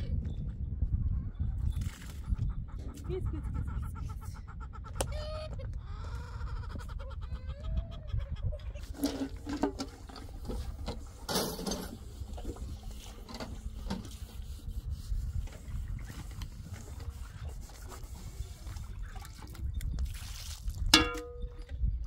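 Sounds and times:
hens clucking: 2.2 - 14.5.

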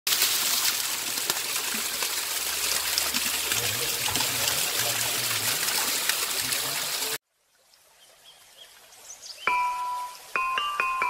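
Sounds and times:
waterfall splashing on stone: 0.1 - 7.2.

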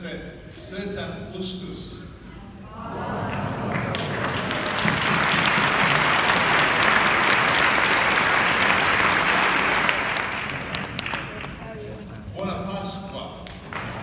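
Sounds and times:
crowd applauding: 3.2 - 11.8, 13.4 - 14.0.

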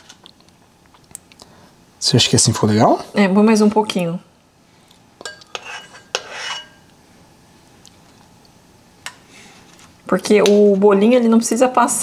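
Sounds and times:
spoon clinking on kitchenware: 5.2 - 6.9
spoon scraping: 5.2 - 6.9.

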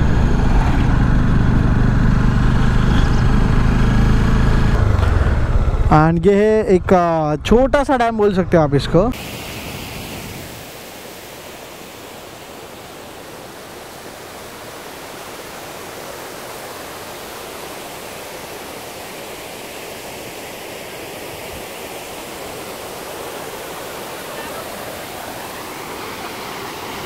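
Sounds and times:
water rushing over weir: 9.1 - 27.0.

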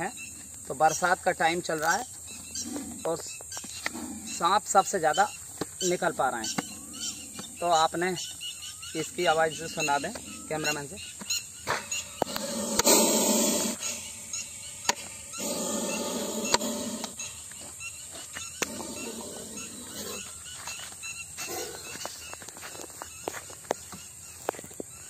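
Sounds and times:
snake hissing in a pipe: 11.8 - 17.4.

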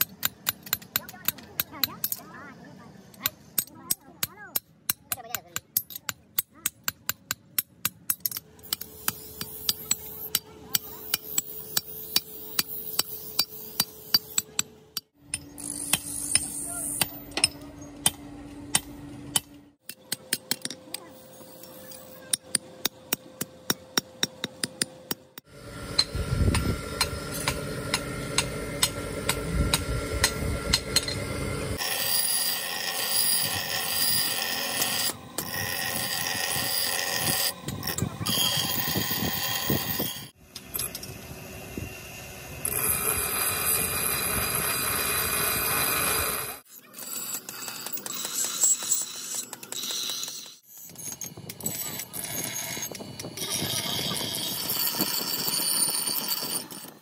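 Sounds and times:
hammer striking metal on anvil: 3.6 - 25.2, 25.9 - 31.3
bench grinder grinding metal: 25.4 - 57.0.

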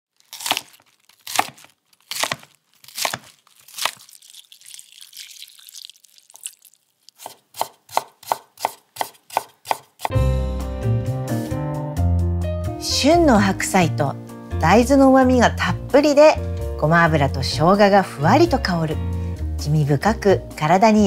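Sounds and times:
knife chopping on cutting board: 1.3 - 4.0, 7.2 - 10.2.

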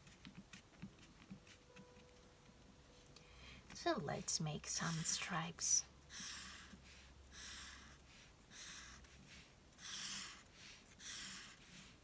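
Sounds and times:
marker scratching on paper: 0.0 - 2.1, 3.9 - 5.5, 6.1 - 12.0.

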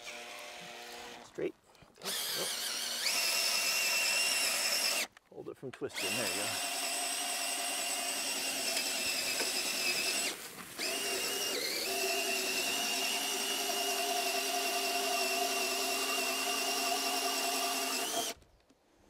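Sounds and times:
electric drill motor whine: 0.0 - 1.2, 2.0 - 5.1, 5.9 - 18.4.

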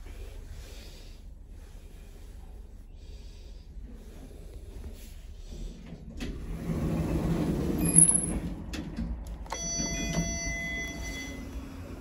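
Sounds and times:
lift doors sliding shut: 5.6 - 12.0.

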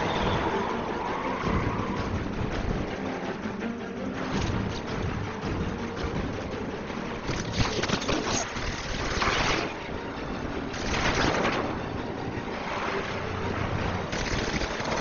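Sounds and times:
rushing road and wind noise: 0.0 - 15.0
speeding car engines: 0.0 - 15.0.

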